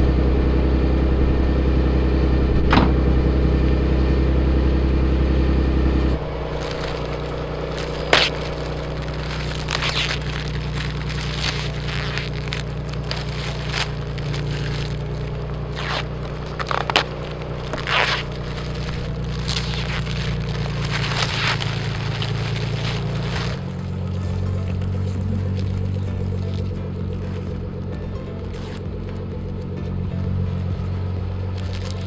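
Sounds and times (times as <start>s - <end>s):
steady low hum: 0.0s - 32.0s
plastic film crinkling: 6.2s - 29.7s, 30.5s - 32.0s.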